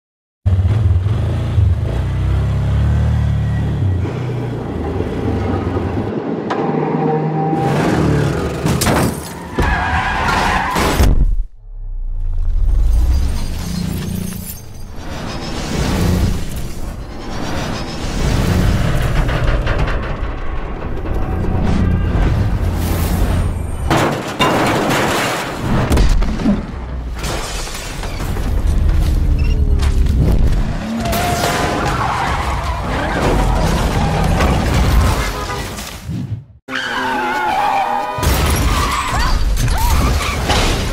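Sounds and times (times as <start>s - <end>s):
tyres skidding: 1.8s - 11.0s, 12.8s - 35.8s
metal crashing: 14.5s - 29.0s.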